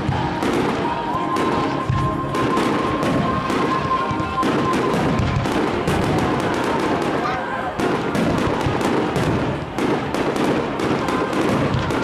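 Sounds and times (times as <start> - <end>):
high whistling tone: 0.0 - 5.8
fireworks bangs and crackles: 0.0 - 12.0.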